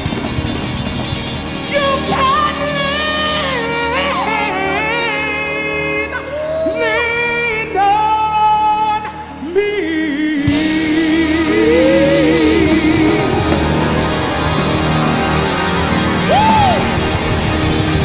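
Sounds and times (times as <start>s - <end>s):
choir singing with band: 9.6s - 18.0s.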